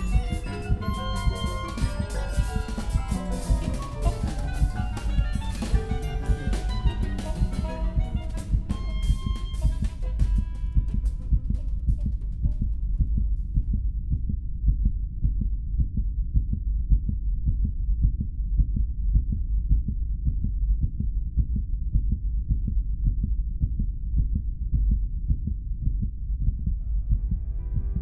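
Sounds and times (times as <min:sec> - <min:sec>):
deep rumble: 0:00.0 - 0:28.0
heartbeat pulse: 0:00.0 - 0:28.0.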